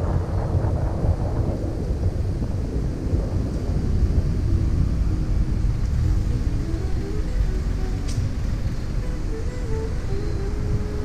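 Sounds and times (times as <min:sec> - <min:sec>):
faint whine: 0:00.0 - 0:11.0
road traffic: 0:00.0 - 0:11.0
wind buffeting microphone: 0:00.0 - 0:11.0.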